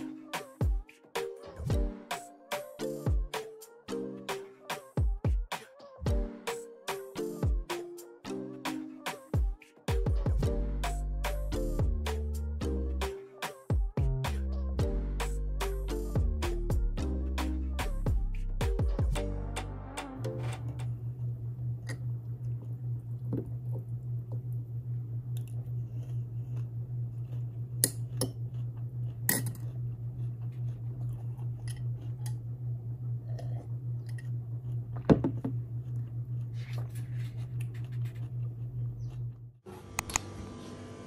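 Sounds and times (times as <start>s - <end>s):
steady low hum: 14.0s - 41.0s.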